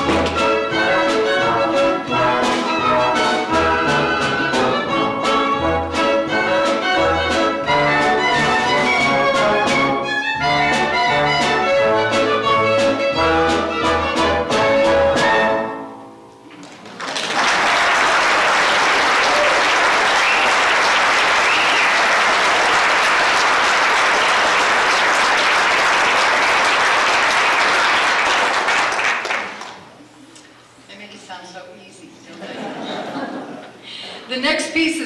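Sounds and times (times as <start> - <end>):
ragtime band playing: 0.0 - 16.0, 16.6 - 29.6
audience applauding: 16.5 - 30.0.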